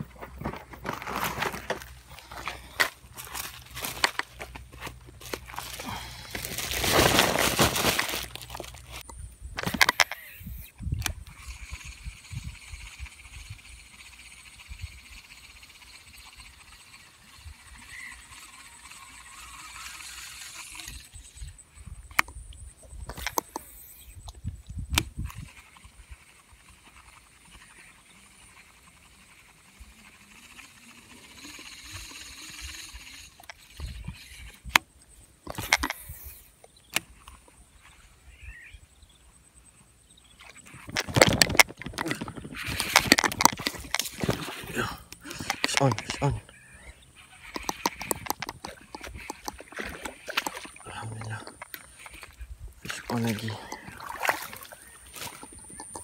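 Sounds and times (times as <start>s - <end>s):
rustling: 0.0s - 10.0s
fishing reel clicks and knocks: 9.0s - 12.0s, 40.9s - 44.4s, 47.2s - 50.7s
fishing reel clicks: 9.0s - 22.4s, 24.9s - 34.9s, 40.9s - 50.8s.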